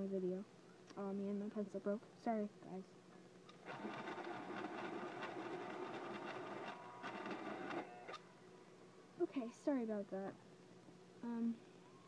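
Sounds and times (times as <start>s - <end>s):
pencil sharpener grinding: 3.7s - 8.2s.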